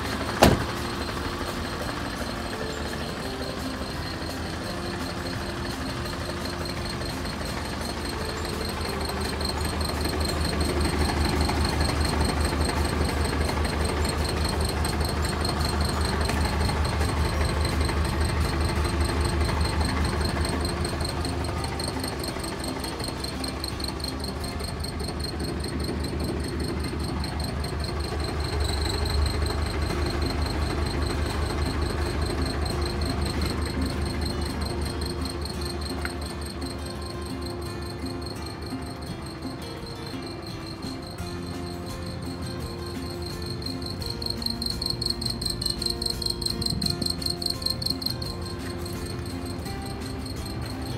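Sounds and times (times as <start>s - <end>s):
diesel truck engine idling: 0.0s - 50.7s.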